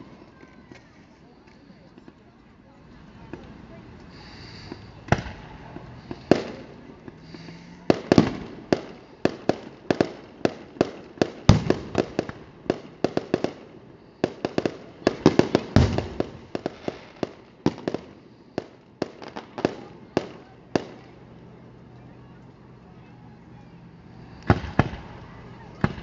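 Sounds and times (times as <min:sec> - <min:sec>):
deep firework booms: 0:04.7 - 0:13.6, 0:14.2 - 0:18.1, 0:24.4 - 0:26.0
firework shells bursting: 0:24.2 - 0:25.2.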